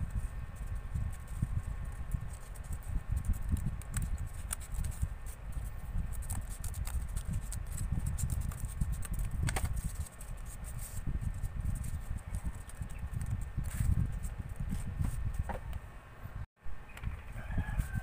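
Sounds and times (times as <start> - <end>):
scissors cutting cardboard: 2.3 - 5.4, 6.0 - 11.0.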